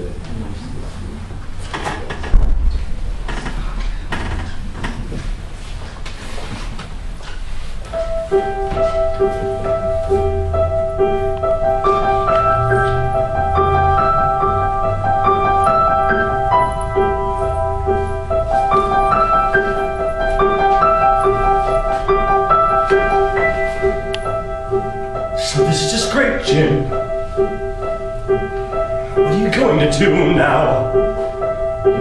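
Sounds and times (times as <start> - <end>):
piano playing: 7.0 - 32.0.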